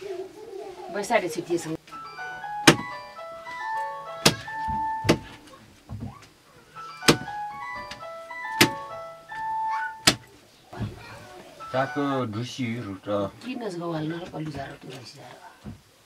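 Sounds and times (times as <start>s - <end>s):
plinking background music: 1.8s - 5.5s, 6.7s - 10.2s, 11.6s - 12.5s.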